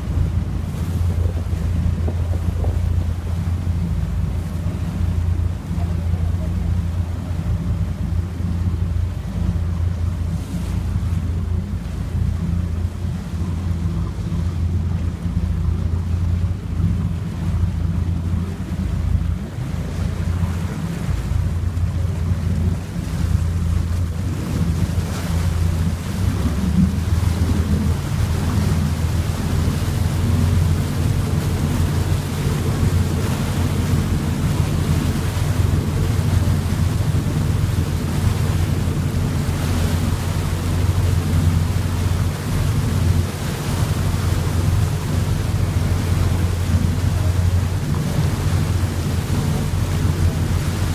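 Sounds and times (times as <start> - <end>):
motorboat engine running: 0.0 - 50.9
rushing water from wake: 0.0 - 50.9
wind buffeting microphone: 0.0 - 50.9.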